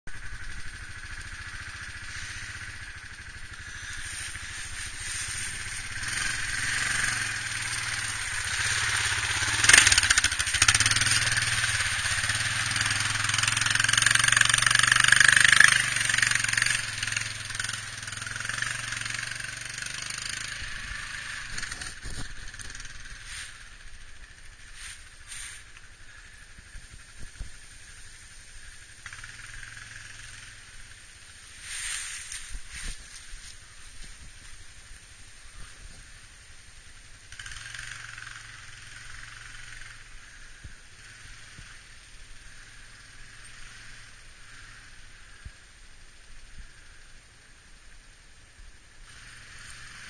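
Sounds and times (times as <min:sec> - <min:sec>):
atv engine running: 0:00.1 - 0:50.0.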